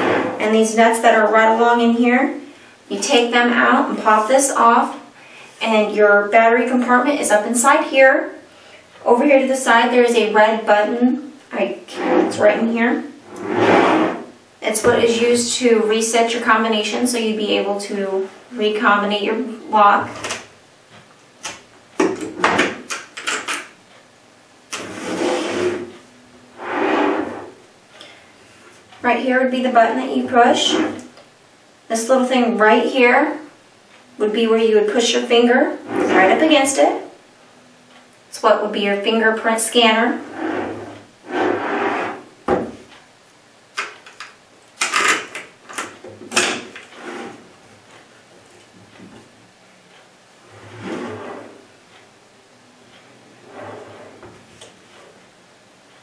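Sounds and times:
case scraping on countertop: 0.0s - 0.4s, 11.9s - 12.6s, 13.3s - 14.4s, 24.8s - 25.9s, 26.6s - 27.6s, 35.8s - 36.4s, 40.2s - 42.3s, 50.6s - 51.6s.

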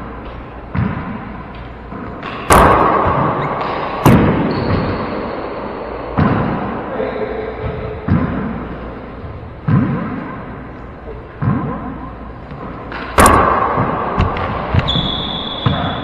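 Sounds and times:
echoing slaps of hands on ball: 0.2s - 4.9s, 6.1s - 6.8s, 9.6s - 10.4s, 12.5s - 15.0s.

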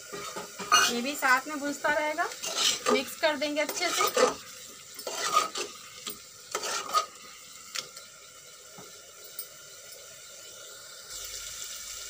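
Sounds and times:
spatula scraping a pot: 0.0s - 1.1s, 2.3s - 7.4s
food sizzling: 0.0s - 12.0s.

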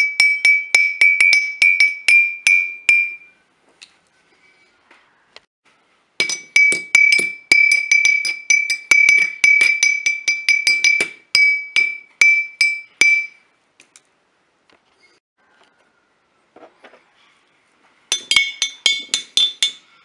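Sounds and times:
glass bottle tapped: 6.2s - 13.4s, 18.1s - 19.8s.

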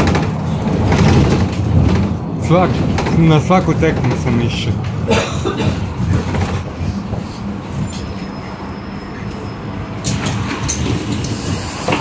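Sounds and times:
vehicle cabin rumble: 0.0s - 8.4s.

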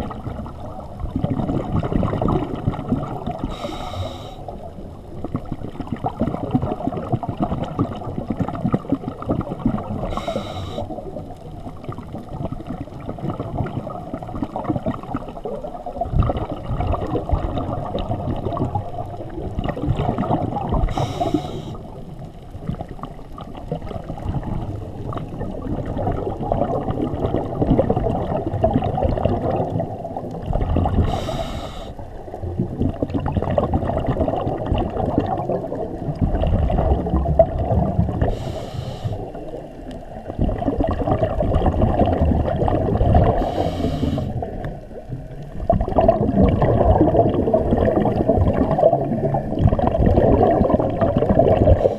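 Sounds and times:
exhaled bubbles gurgling: 0.0s - 51.9s
regulator hissing inhalations: 3.5s - 4.4s, 10.1s - 10.9s, 20.9s - 21.8s, 31.0s - 32.0s, 38.3s - 39.4s, 43.4s - 44.4s.

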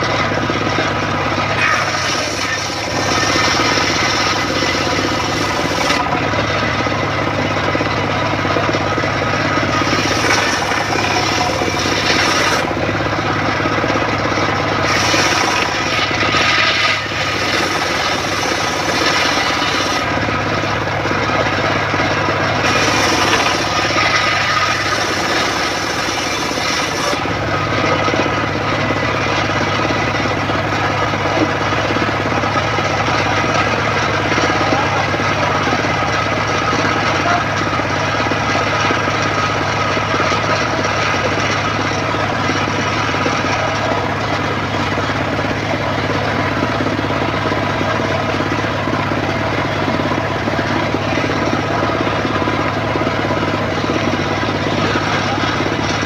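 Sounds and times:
saw bench humming: 0.0s - 56.0s
saw blade cutting wood: 1.2s - 7.0s, 7.8s - 13.0s, 14.4s - 20.5s, 22.3s - 28.4s, 54.0s - 56.0s.

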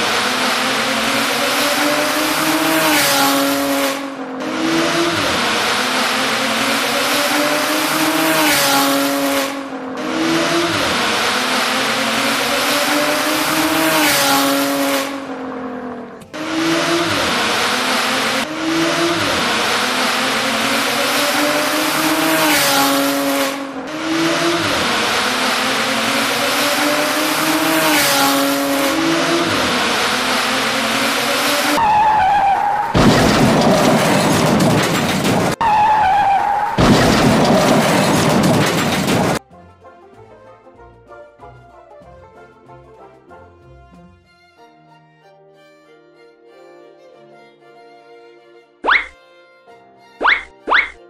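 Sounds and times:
race car engine revving: 0.0s - 39.4s
tyres screeching: 31.2s - 39.4s, 50.2s - 51.0s.

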